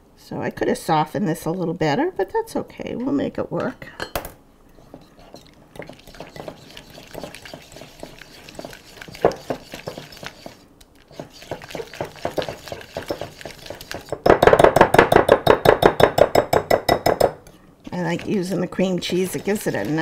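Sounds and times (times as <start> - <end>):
whisk clicking and scraping bowl: 4.7 - 14.8, 17.8 - 20.0.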